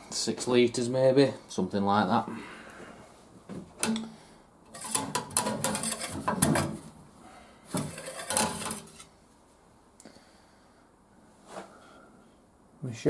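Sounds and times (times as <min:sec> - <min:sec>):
metal dipstick rattling and scraping: 0:04.7 - 0:06.8, 0:07.8 - 0:09.1.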